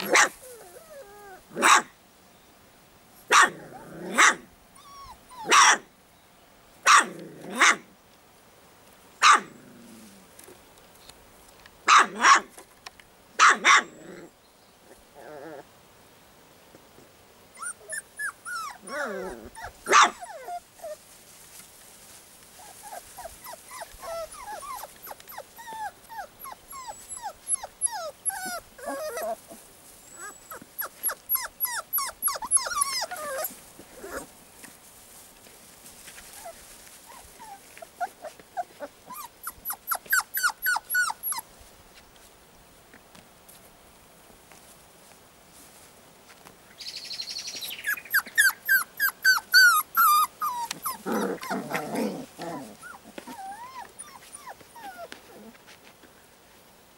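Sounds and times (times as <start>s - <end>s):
puppies squealing: 17.6s - 20.6s, 22.8s - 29.4s, 30.1s - 34.2s, 37.4s - 41.4s, 47.8s - 55.1s.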